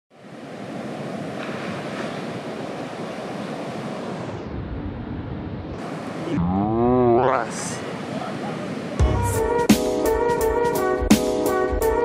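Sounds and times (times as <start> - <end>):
heavy surf breaking: 0.1 - 9.0.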